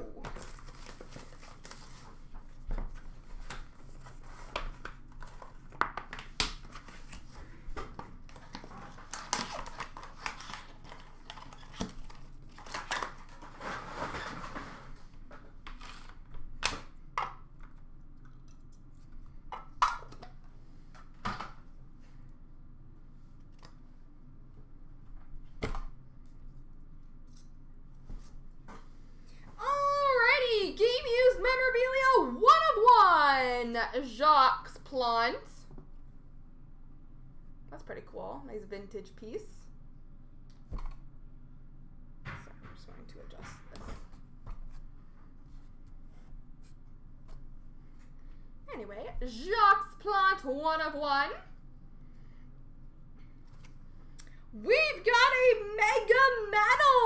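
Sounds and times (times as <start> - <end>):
wrapper tearing and crinkling: 9.0 - 13.4.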